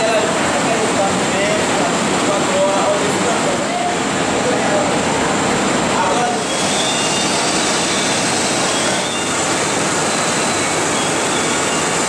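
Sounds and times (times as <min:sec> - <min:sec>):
textile machinery din: 0:00.0 - 0:12.0.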